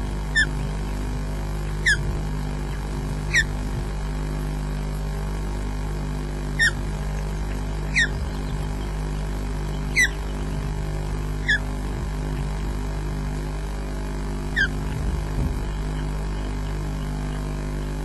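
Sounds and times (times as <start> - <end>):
steady low hum: 0.0 - 18.0
osprey chirping calls: 0.3 - 0.7, 1.8 - 3.6, 6.6 - 10.8, 11.4 - 11.7, 14.5 - 14.8.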